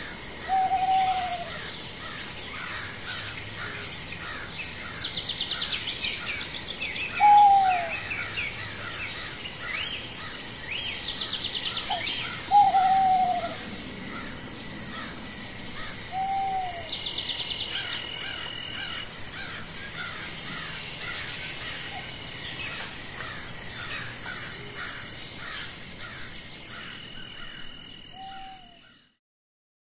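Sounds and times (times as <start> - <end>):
falling bird call: 0.0 - 2.8, 7.1 - 9.0, 11.7 - 14.3, 15.8 - 17.0
birds chirping: 0.3 - 28.9.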